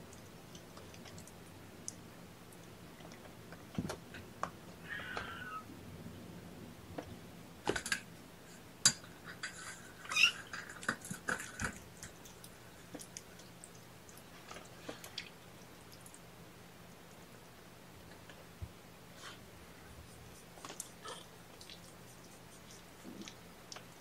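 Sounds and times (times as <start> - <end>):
kittens mewing: 4.8 - 5.7.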